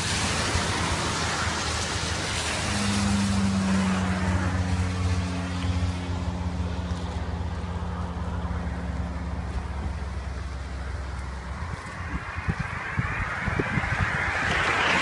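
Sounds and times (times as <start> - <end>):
steady engine hum: 0.0 - 15.0
vehicle passing: 0.0 - 15.0.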